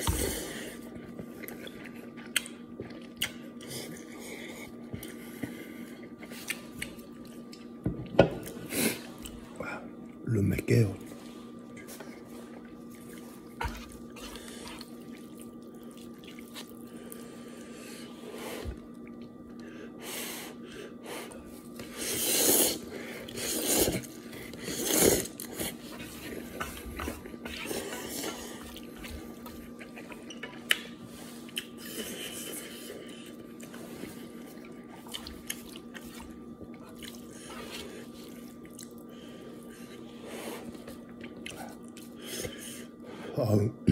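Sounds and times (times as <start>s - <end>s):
faint steady hum: 0.0s - 43.9s
person slurping noodles: 22.0s - 25.8s.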